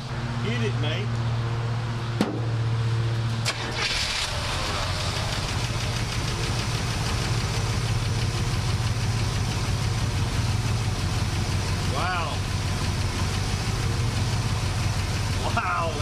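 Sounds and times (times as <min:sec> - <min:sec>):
car engine starting and running: 0:00.0 - 0:16.0
engine ticking: 0:03.5 - 0:16.0.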